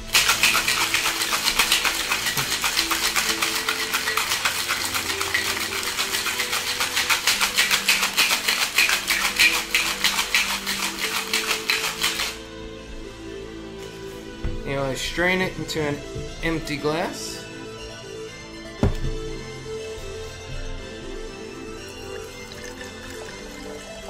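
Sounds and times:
ice rattling in cocktail shaker: 0.0 - 12.4, 22.0 - 24.0.

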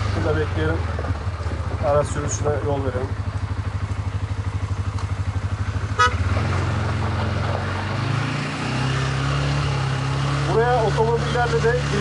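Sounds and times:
atv engine idling: 0.0 - 7.6
short horn toot: 6.0 - 6.3.

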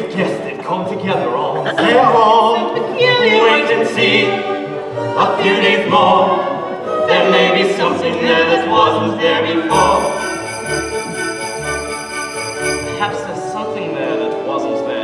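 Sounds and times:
voices singing with vibrato: 1.7 - 13.1
orchestra playing: 9.7 - 13.8.

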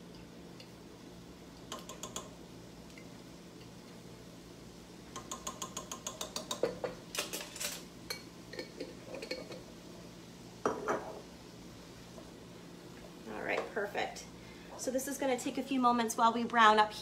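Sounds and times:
spoon tapping in glass jar: 1.6 - 2.3, 5.2 - 6.9.

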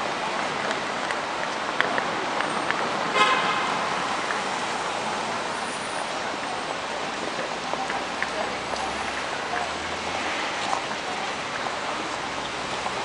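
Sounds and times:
city street traffic hum: 0.0 - 13.0
car horn toot: 3.1 - 3.7.

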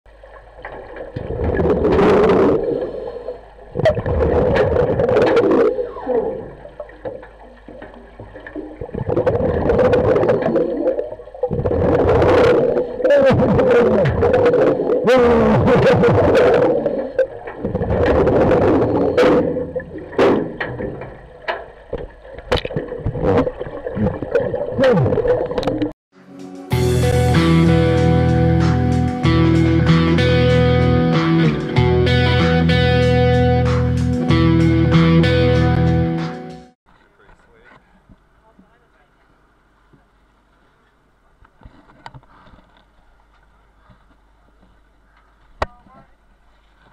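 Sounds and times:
air bubbling from regulator underwater: 0.7 - 25.9.

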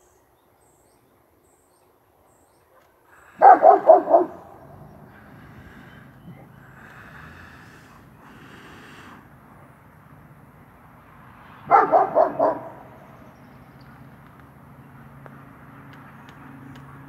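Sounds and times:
dog barking: 2.7 - 4.6, 11.7 - 12.9.

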